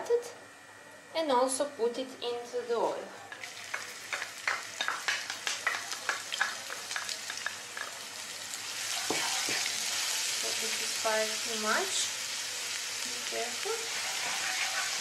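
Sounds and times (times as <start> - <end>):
oil sizzling in a frying pan: 3.3 - 15.0
onion crackling in hot oil: 3.3 - 15.0.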